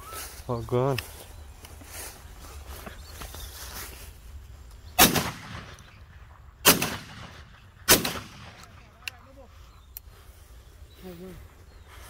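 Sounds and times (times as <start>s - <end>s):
shotgun shots with echo: 5.0s - 5.9s, 6.6s - 8.6s.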